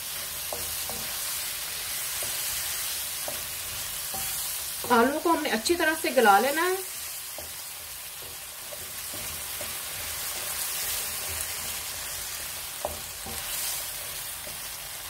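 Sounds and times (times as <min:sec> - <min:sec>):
potatoes sizzling in oil: 0:00.0 - 0:15.0
wooden spatula knocking on pan: 0:00.4 - 0:01.2, 0:03.2 - 0:05.7, 0:07.3 - 0:10.6, 0:12.8 - 0:13.6.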